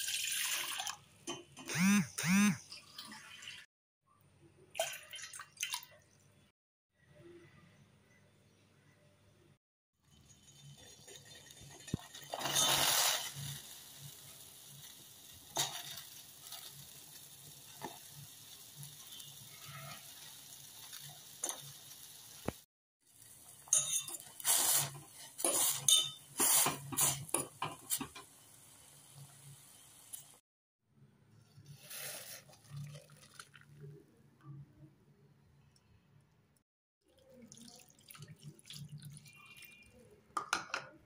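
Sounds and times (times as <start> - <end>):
scrapes and clinks in pot: 23.7 - 28.3.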